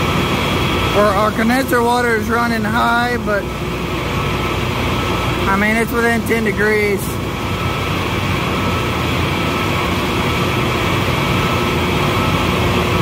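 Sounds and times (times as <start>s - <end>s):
chiller machine humming: 0.0s - 13.0s
thin whine: 0.0s - 13.0s.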